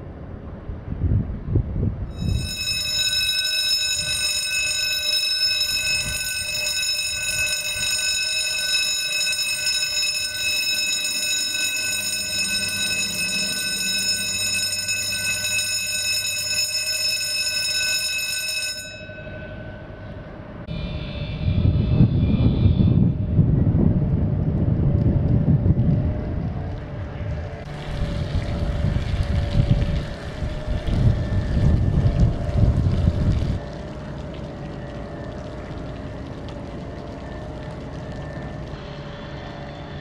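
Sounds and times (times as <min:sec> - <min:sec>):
bridge warning bell ringing: 0:02.1 - 0:21.8
higher-pitched signal: 0:02.1 - 0:23.0
low hum: 0:18.8 - 0:40.0.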